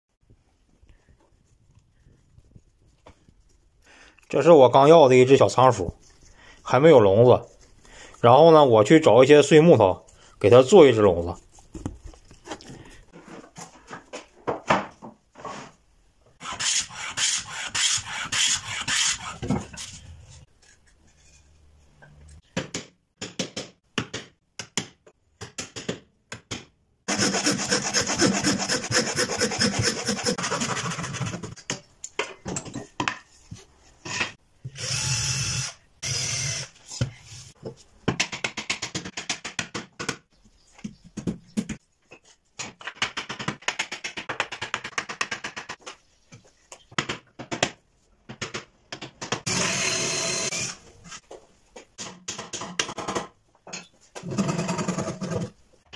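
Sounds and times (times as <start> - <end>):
rasping strokes shaving wood: 16.4 - 19.4, 27.1 - 31.5.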